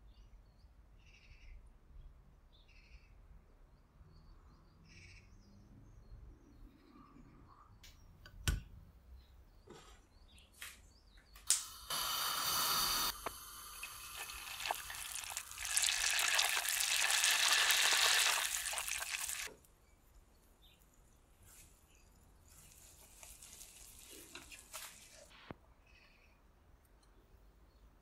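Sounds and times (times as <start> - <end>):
butter sizzling in a saucepan: 11.6 - 19.6, 22.5 - 25.3.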